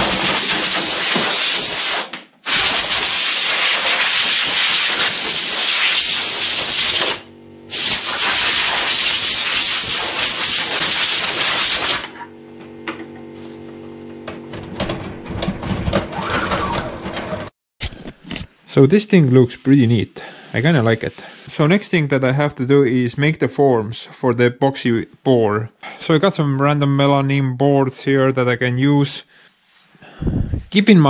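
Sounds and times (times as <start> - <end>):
air blow gun hissing: 0.0 - 12.2.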